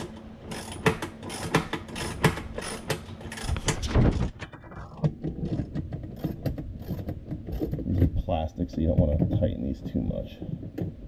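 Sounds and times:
socket ratchet clicking: 0.0 - 3.6.

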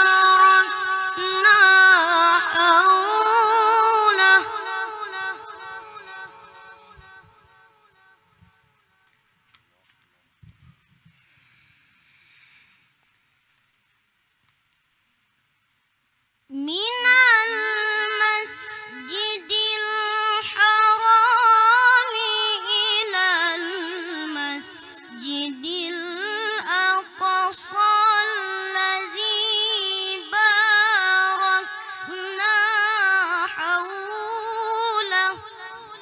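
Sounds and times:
boy reciting melodically: 0.0 - 7.3, 16.5 - 36.0.

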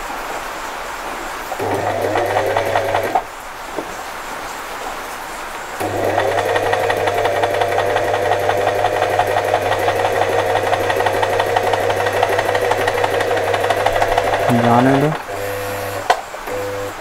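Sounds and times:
sewing machine motor hum: 1.6 - 3.3, 5.8 - 17.0
needle ticking: 5.8 - 16.8.

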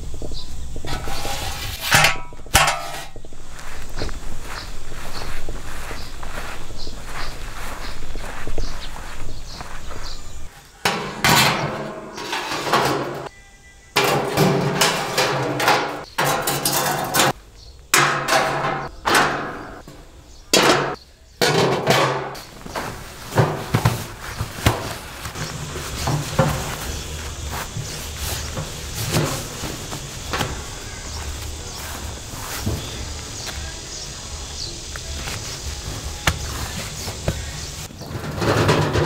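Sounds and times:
metal stove parts clanking: 0.8 - 3.2, 10.8 - 13.3, 14.0 - 19.9, 20.5 - 24.0, 36.2 - 39.0.

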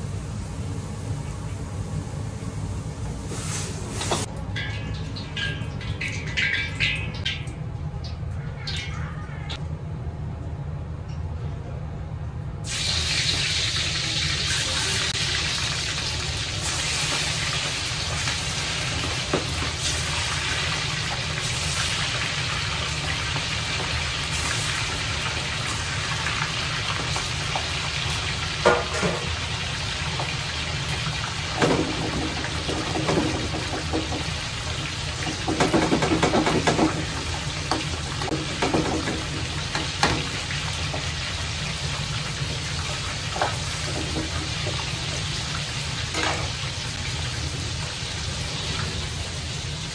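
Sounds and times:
oil bubbling and sizzling: 0.0 - 9.6, 12.6 - 49.9
utensils knocking and clattering: 35.2 - 40.3.

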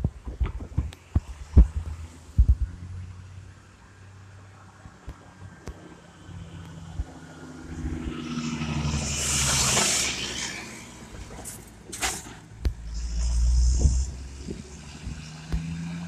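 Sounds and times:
car passing by: 4.3 - 16.0.

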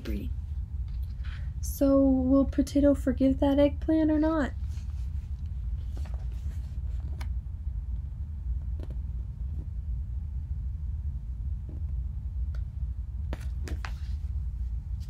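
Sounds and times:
low background hum: 0.0 - 15.0
paper page rustling: 5.8 - 7.3, 13.3 - 14.3.

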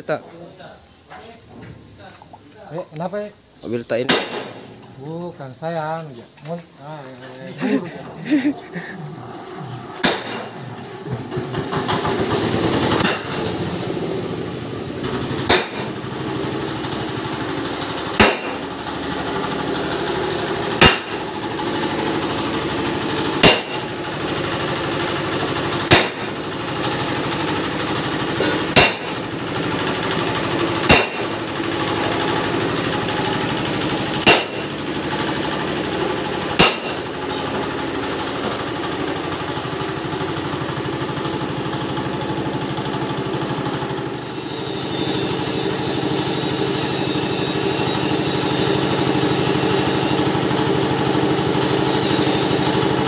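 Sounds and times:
engine-like drone: 3.8 - 53.0
hammer blows on metal: 20.8 - 21.3, 23.4 - 23.9, 25.9 - 26.4, 28.4 - 29.3, 30.8 - 31.4, 34.2 - 34.8, 36.5 - 37.5.

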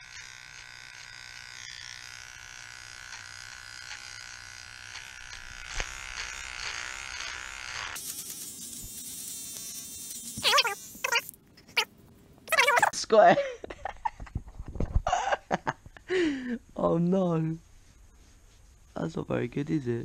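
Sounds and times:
electric hair trimmer buzzing: 0.0 - 11.8.

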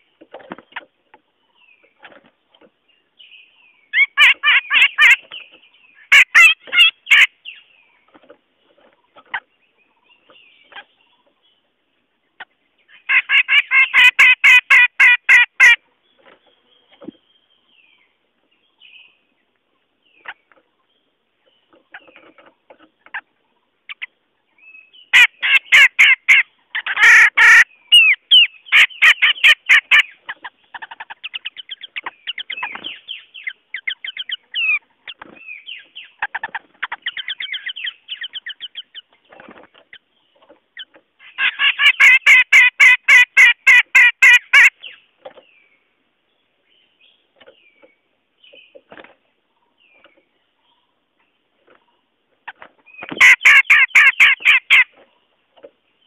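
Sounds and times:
bird chattering calls: 3.9 - 7.6, 12.4 - 15.8, 25.0 - 40.1, 40.8 - 45.0, 52.5 - 55.0.

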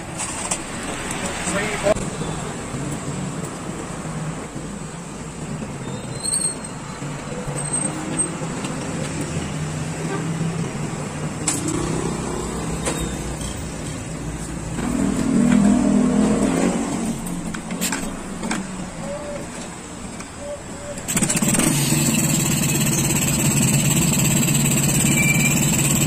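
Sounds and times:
vehicle engine running: 21.1 - 26.0.

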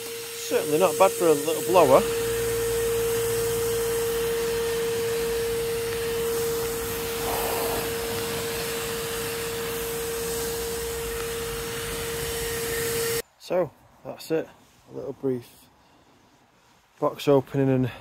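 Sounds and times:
vacuum blowing air with whine: 0.0 - 13.2.

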